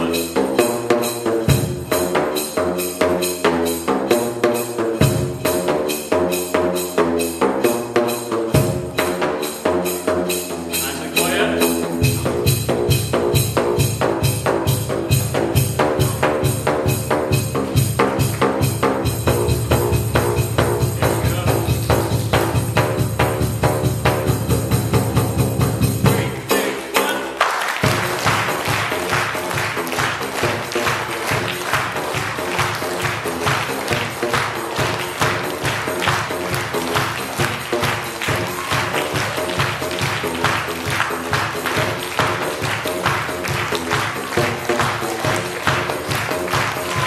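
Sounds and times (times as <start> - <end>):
pipe drums struck with flip-flops: 12.0 - 26.8.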